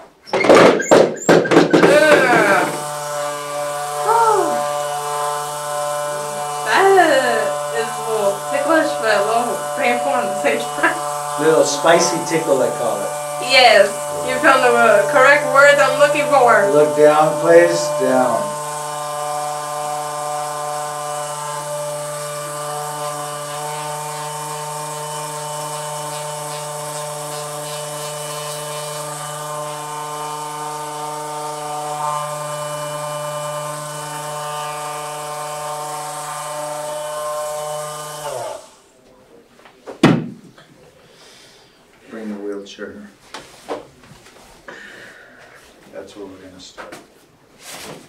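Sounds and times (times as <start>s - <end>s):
massager motor humming: 0.0s - 38.9s
sharp knock: 0.3s - 2.3s, 39.9s - 40.6s.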